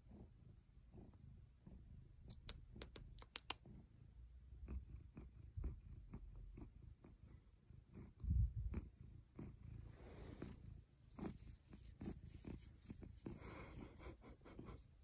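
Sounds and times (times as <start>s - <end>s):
cat purring: 0.0s - 15.0s
hand stroking fur: 9.9s - 14.8s.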